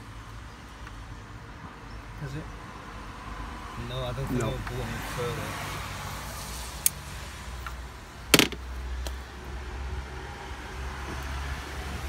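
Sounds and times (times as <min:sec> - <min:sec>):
plastic clip snapping: 0:08.4 - 0:08.6
plastic connector clicking: 0:08.4 - 0:08.6.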